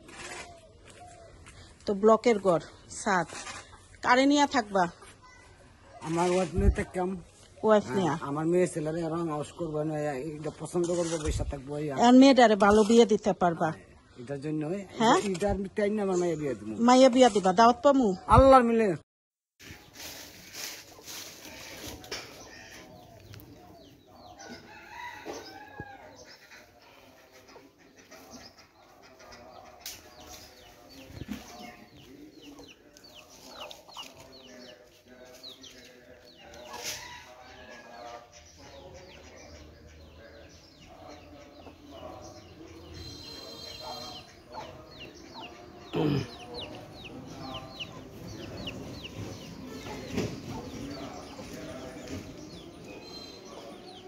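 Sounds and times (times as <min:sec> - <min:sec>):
chickens clucking: 0:19.6 - 0:54.0.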